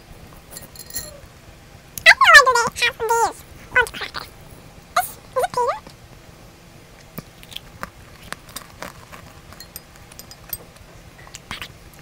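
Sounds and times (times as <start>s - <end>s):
chewing crunchy cookie: 7.0s - 11.7s.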